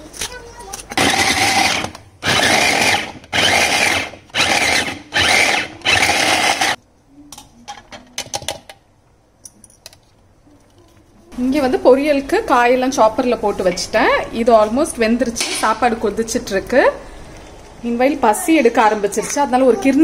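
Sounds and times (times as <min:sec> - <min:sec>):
electric chopper whirring: 0:00.9 - 0:06.8.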